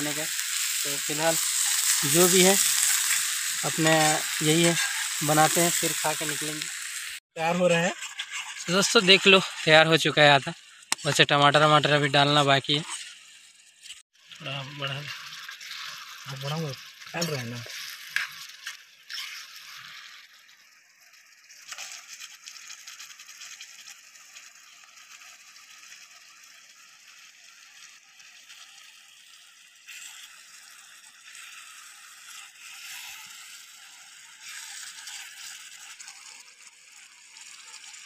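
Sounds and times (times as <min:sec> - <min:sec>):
gravy sizzling in a frying pan: 0:00.0 - 0:38.0
ladle stirring in pan: 0:00.1 - 0:07.2, 0:08.0 - 0:09.9, 0:15.1 - 0:20.4, 0:27.8 - 0:38.0.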